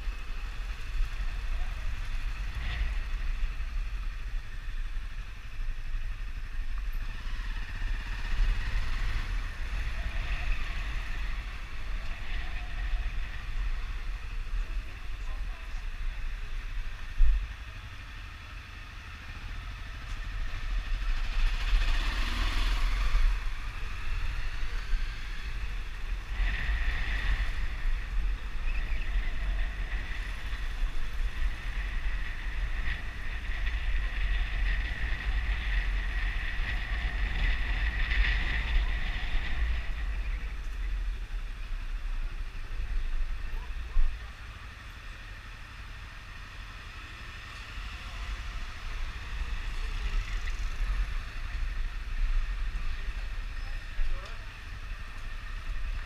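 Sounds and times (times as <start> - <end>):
wind rumble on microphone: 0.0 - 18.2, 19.6 - 45.4
motorcycle engine running: 0.0 - 56.0.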